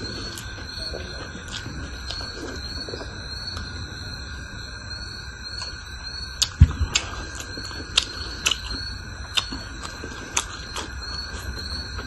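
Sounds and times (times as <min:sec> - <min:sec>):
steady high whine: 0:00.0 - 0:12.0
mouth clicks and smacks eating: 0:06.4 - 0:12.0.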